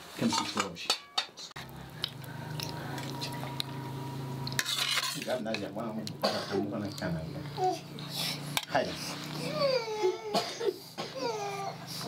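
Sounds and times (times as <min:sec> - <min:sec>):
low hum: 0:01.6 - 0:04.6
fork scraping metal pan: 0:04.4 - 0:05.7.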